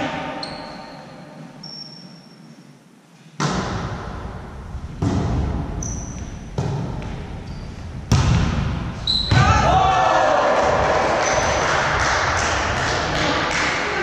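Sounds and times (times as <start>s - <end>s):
shoe squeaks: 0.4s - 2.7s, 5.8s - 6.5s, 7.4s - 7.9s, 9.0s - 9.4s
volleyball hits: 3.4s - 4.2s, 5.0s - 7.2s, 8.1s - 14.0s.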